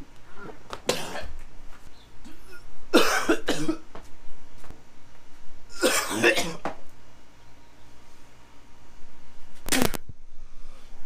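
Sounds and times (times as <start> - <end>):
man coughing and gagging: 0.9 - 1.3, 2.3 - 3.9, 5.7 - 6.7.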